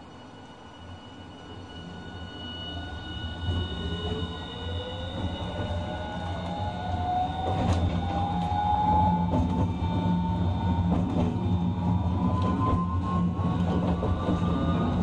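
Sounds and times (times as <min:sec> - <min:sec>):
low rumble of tram: 0:00.0 - 0:15.0
tram motor whine rising in pitch: 0:00.0 - 0:15.0.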